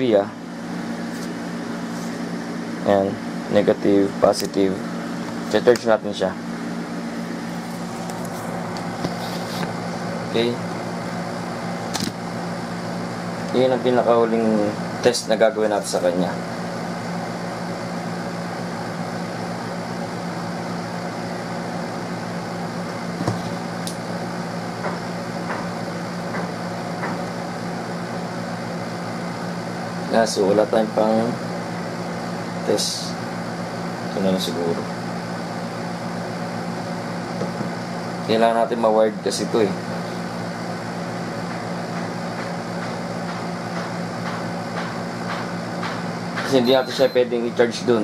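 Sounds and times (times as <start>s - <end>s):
fan humming: 0.0s - 48.0s
sharp click: 11.9s - 12.2s.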